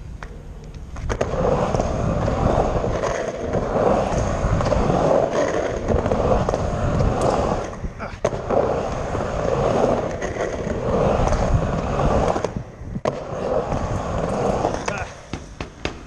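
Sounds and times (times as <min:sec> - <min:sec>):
skateboard wheels rolling on concrete: 0:00.0 - 0:16.0
skateboard clack: 0:00.1 - 0:16.0.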